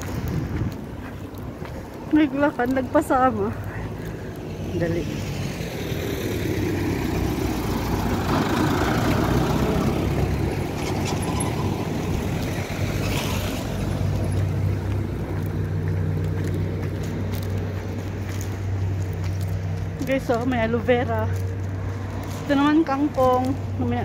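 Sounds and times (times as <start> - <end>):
low engine hum: 0.0 - 24.0
car driving past: 4.6 - 16.0.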